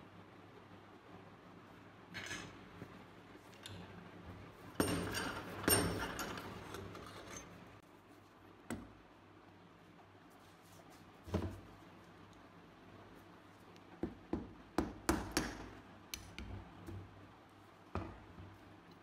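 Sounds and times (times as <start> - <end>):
metallic knocks with scraping rattle: 4.8 - 7.6.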